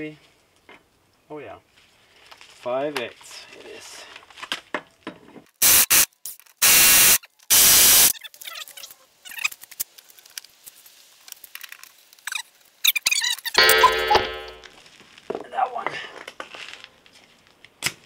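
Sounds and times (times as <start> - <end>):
impact wrench hammering: 13.6 - 14.7.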